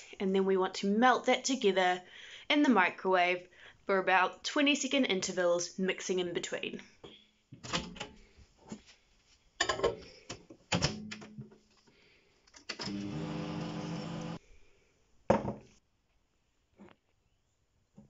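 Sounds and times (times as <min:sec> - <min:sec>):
microwave humming: 0:12.8 - 0:14.4.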